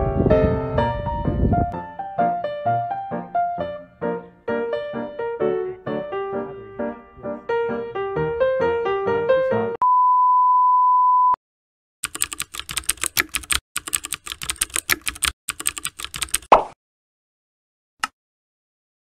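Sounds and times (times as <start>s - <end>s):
rapid keyboard typing clicks: 12.0s - 16.5s.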